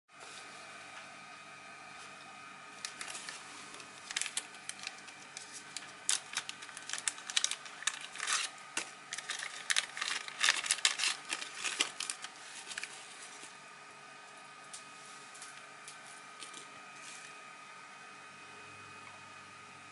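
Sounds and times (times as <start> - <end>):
plastic bag crinkling: 2.8 - 13.5.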